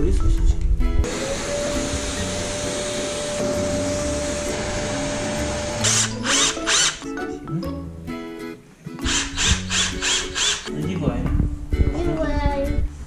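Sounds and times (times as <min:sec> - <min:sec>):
vacuum cleaner motor running: 0:01.0 - 0:06.4.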